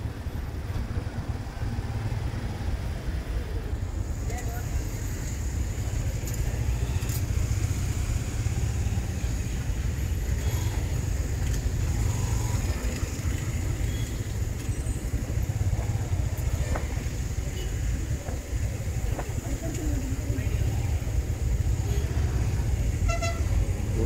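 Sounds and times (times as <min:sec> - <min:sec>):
motorcycle road rumble: 0:00.0 - 0:24.0.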